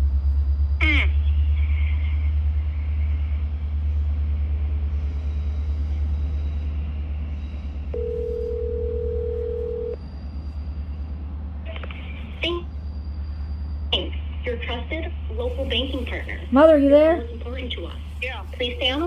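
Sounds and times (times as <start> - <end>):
low rumble on phone line: 6.4 - 19.0
telephone ringback tone: 8.0 - 10.0.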